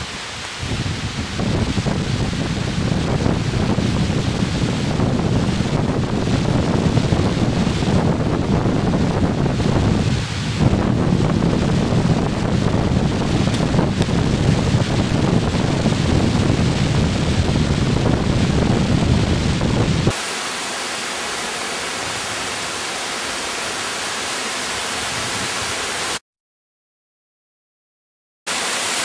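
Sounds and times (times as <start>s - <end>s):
wind buffeting microphone: 0.0s - 20.2s, 24.8s - 26.0s
steady hiss: 0.0s - 26.2s, 28.5s - 29.0s.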